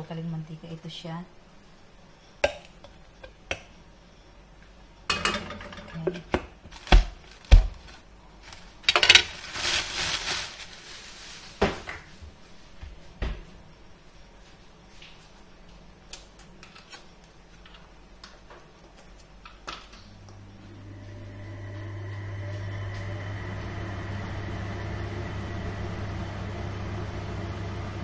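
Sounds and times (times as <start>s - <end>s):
dishes and pots knocking: 5.1s - 6.5s.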